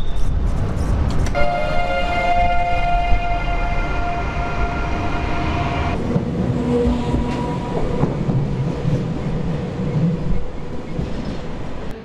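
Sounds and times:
train rumbling on track: 0.0s - 12.0s.

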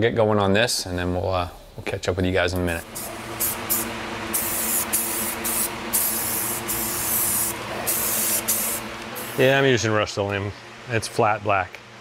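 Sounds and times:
steady low hum: 0.0s - 12.0s
spray paint can hissing: 2.8s - 9.4s.

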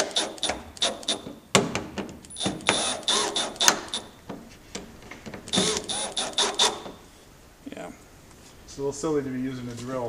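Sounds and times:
cordless drill bursts: 0.0s - 1.3s, 2.3s - 4.2s, 5.5s - 7.0s
drill bit scraping plastic: 2.4s - 4.1s, 5.5s - 7.0s.

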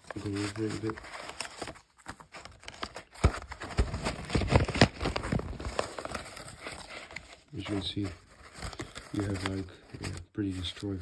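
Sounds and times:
cardboard and paper crinkling: 0.0s - 11.0s.

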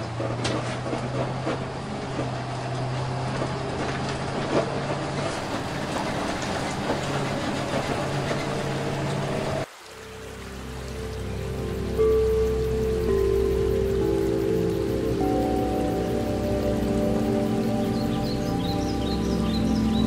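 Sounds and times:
rattles and knocks from bus body: 0.0s - 9.6s
bus engine hum: 0.0s - 9.7s, 10.4s - 20.0s
road noise: 0.0s - 20.0s.

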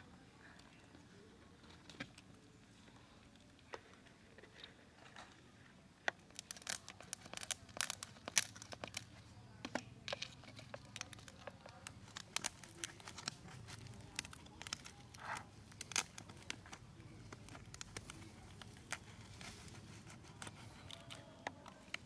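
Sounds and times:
shell clicking and crackling: 6.1s - 22.0s.

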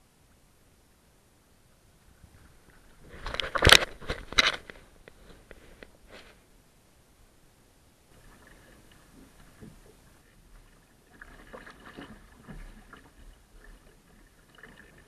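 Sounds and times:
camera handling scrapes and clicks: 3.1s - 6.3s.

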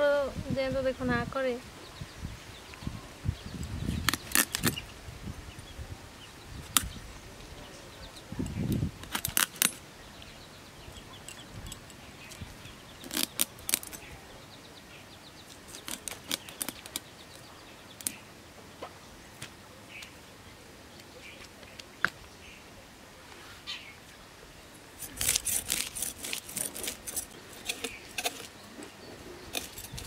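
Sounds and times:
fish scales being scraped: 15.5s - 17.0s, 25.0s - 28.6s, 29.5s - 30.0s.

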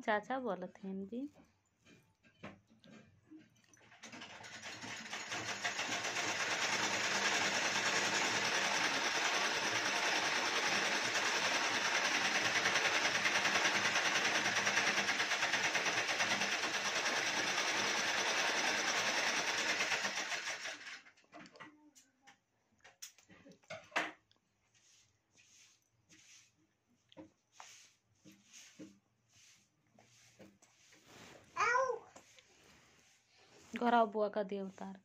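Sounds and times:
mechanical running noise with rattle: 3.8s - 21.2s.

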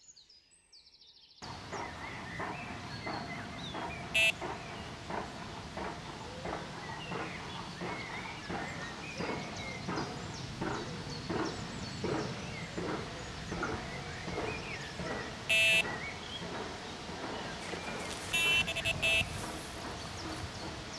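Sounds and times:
bird chirps: 0.2s - 4.9s, 13.6s - 16.5s, 17.8s - 20.7s
birds calling: 1.4s - 20.9s
electronic bite alarm beep: 4.2s - 4.4s, 15.5s - 15.9s, 18.4s - 19.3s.

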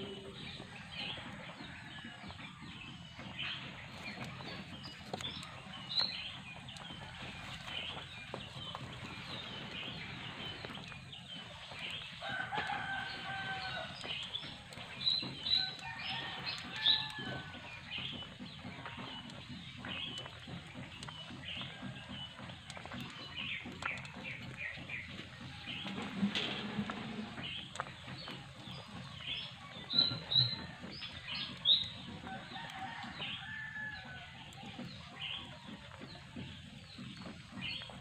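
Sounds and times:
chickens chirping and clucking: 0.0s - 38.0s
rooster crowing: 12.2s - 14.0s, 15.6s - 17.6s.

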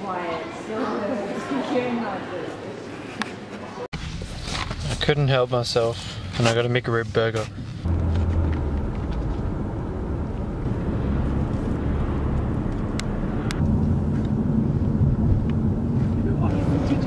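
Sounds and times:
car road and engine rumble: 4.0s - 17.0s.

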